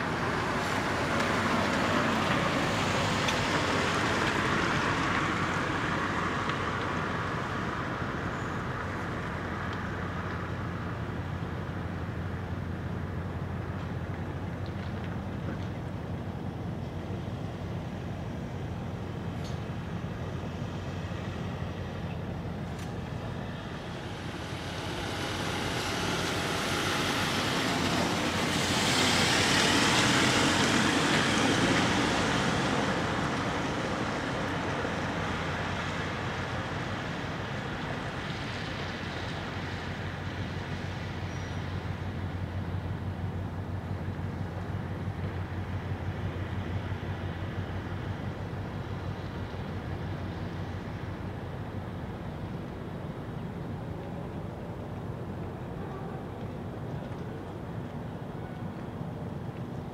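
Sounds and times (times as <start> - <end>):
vehicle passing close by: 23.1 - 37.2.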